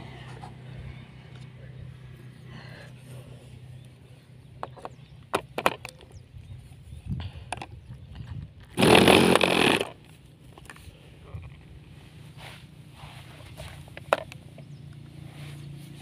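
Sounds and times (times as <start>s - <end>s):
electric starter whirring: 8.8s - 10.0s.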